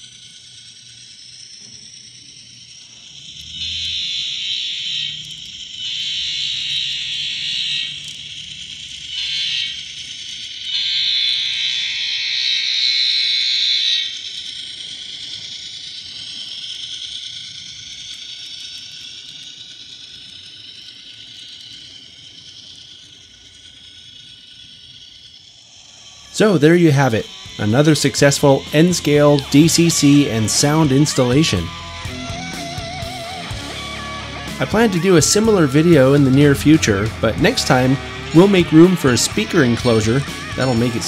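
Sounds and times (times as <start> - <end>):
model locomotive running sound: 0.0 - 41.0
thin buzzy model train horn: 3.4 - 8.2, 9.0 - 10.0, 10.6 - 14.2.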